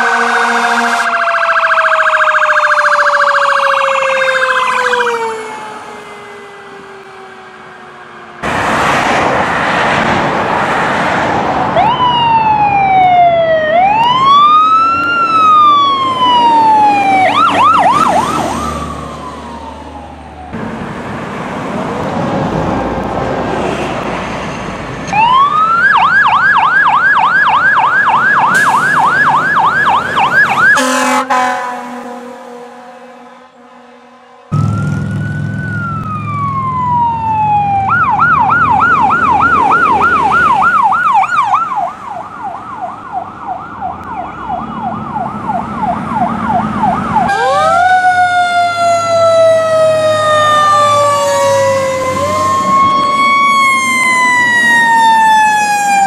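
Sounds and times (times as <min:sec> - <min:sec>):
electronic siren yelp: 0:00.0 - 0:07.9, 0:11.8 - 0:20.6, 0:25.1 - 0:31.6, 0:34.5 - 0:56.0
siren wail: 0:00.0 - 0:10.0, 0:10.9 - 0:20.8, 0:25.0 - 0:56.0
diesel engine rumble: 0:34.5 - 0:41.2.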